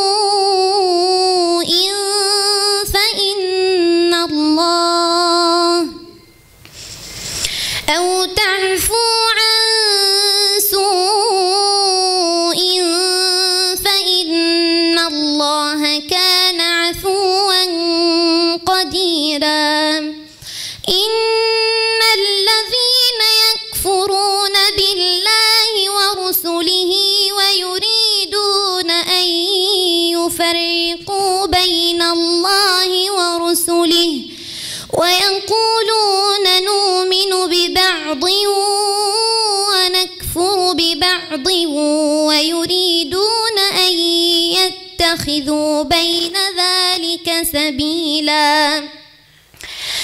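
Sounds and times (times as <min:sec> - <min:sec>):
woman reciting melodically: 0:00.0 - 0:06.4, 0:07.4 - 0:50.0.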